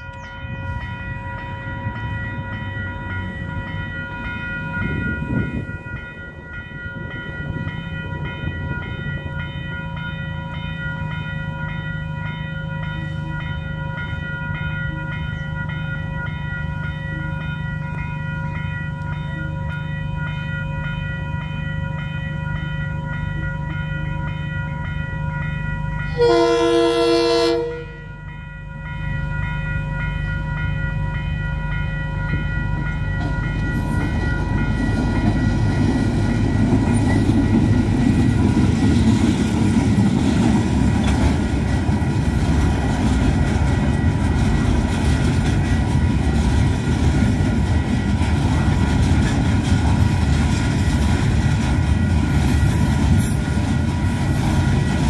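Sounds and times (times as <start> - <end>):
level crossing bells ringing: 0.0 - 49.0
locomotive engine drone: 0.0 - 55.0
locomotive horn: 26.1 - 28.2.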